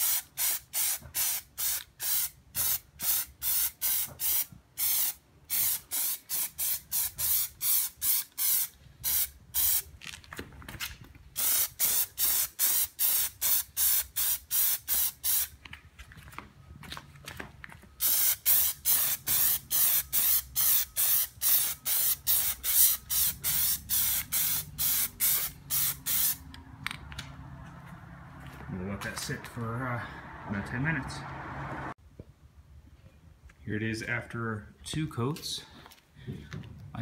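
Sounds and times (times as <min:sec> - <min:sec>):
aerosol can spraying hissing bursts: 0:00.0 - 0:09.8, 0:11.4 - 0:15.5, 0:18.0 - 0:26.4.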